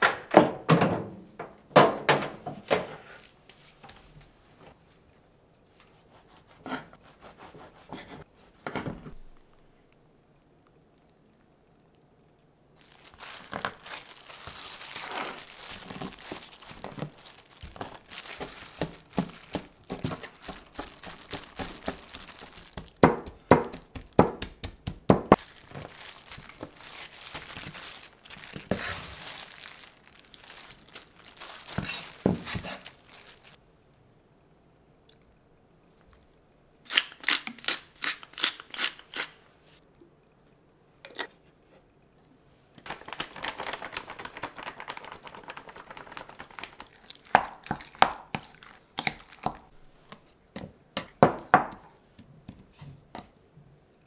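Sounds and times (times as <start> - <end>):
plastic glove crinkling: 12.8 - 33.6, 42.8 - 50.2.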